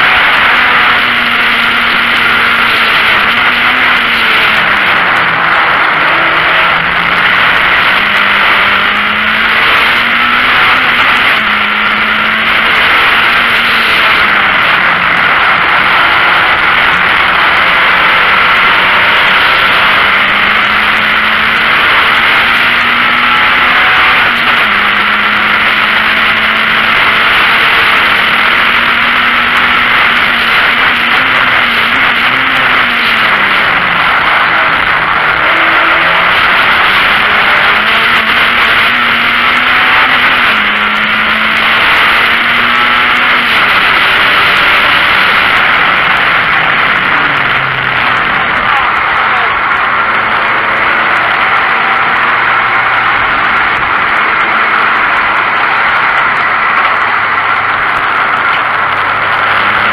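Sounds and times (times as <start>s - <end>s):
race car engine roaring: 0.0s - 59.9s.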